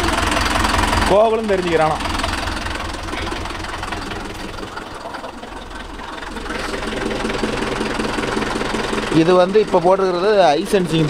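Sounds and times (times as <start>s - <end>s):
tractor diesel engine idling: 0.0s - 11.0s.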